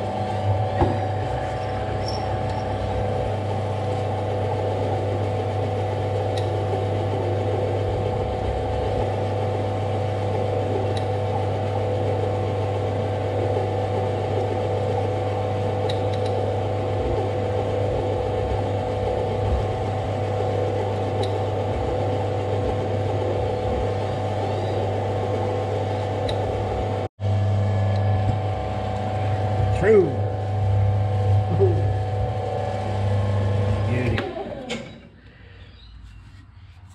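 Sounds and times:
metal lathe running: 0:00.0 - 0:35.1.

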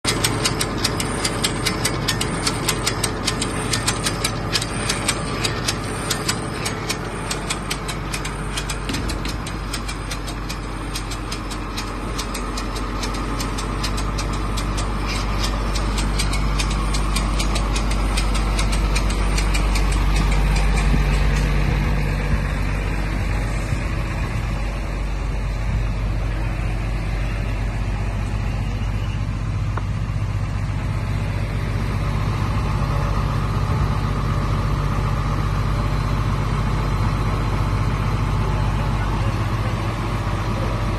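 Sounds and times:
drilling rig engine running: 0:00.0 - 0:40.9
fast regular ticking: 0:00.1 - 0:21.9.

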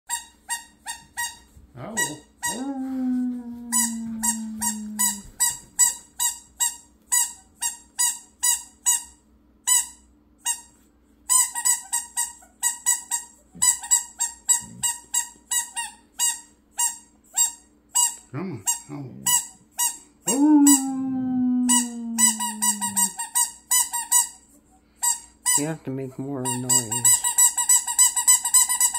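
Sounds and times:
squeaky dog toy squeaking: 0:00.1 - 0:02.6, 0:03.8 - 0:10.7, 0:11.3 - 0:20.0, 0:25.0 - 0:25.8, 0:26.4 - 0:28.9.

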